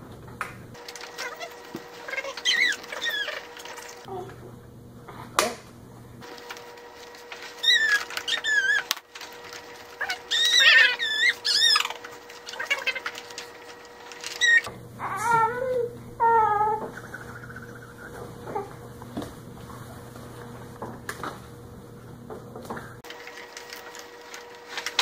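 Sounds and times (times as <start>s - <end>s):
infant squealing: 10.0s - 13.0s, 14.3s - 18.0s
infant babbling: 14.5s - 18.8s.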